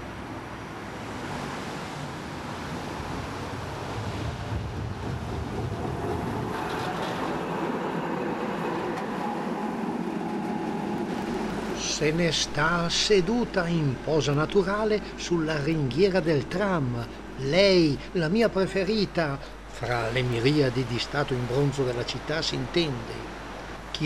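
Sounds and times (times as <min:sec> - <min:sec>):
tram rumbling past: 0:03.4 - 0:21.1
faint steady whine: 0:05.7 - 0:24.0.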